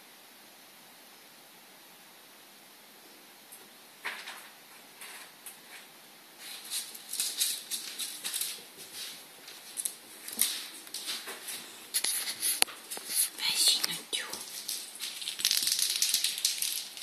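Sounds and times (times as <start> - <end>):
claws pattering on wooden floor: 4.0 - 17.0.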